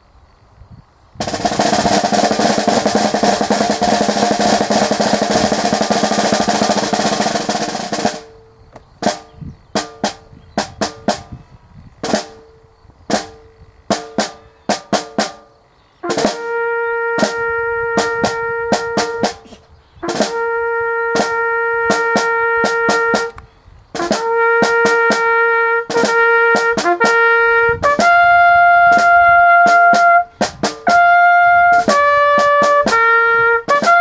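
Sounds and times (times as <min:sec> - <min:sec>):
snare drum roll and strokes: 0:01.2 - 0:08.3, 0:16.1 - 0:16.5, 0:17.2 - 0:20.4, 0:21.1 - 0:23.4, 0:24.0 - 0:28.2, 0:28.9 - 0:31.1
brass note: 0:16.0 - 0:23.4, 0:24.0 - 0:30.3, 0:30.9 - 0:34.0.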